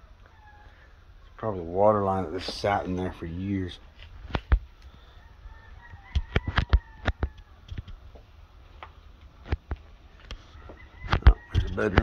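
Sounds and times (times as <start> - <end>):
footsteps on debris-strewn floor: 3.9 - 4.6.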